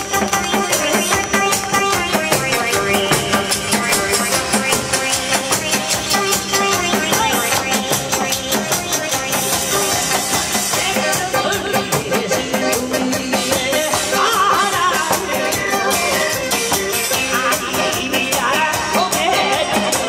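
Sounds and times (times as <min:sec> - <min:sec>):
crowd clapping in rhythm: 0:00.0 - 0:10.7
upbeat music with drum beat: 0:00.0 - 0:20.0.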